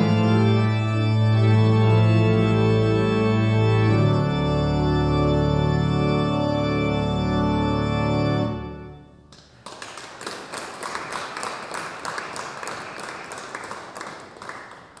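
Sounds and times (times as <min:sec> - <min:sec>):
organ chord ringing: 0:00.0 - 0:09.3
irregular clapping: 0:09.3 - 0:15.0.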